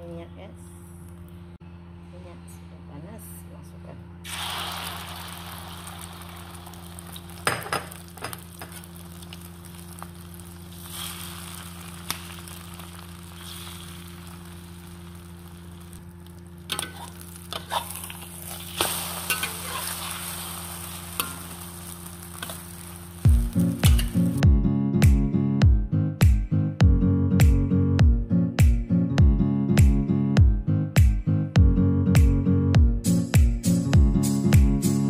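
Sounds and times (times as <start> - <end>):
eggs sizzling in hot oil: 4.3 - 24.4
utensil knocking and scraping wok: 7.4 - 8.9, 16.7 - 21.6, 23.3 - 24.3.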